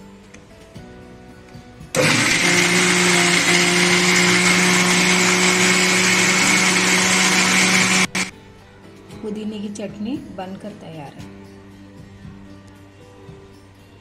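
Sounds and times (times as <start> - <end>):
mixer grinder motor whining: 2.0 - 8.3.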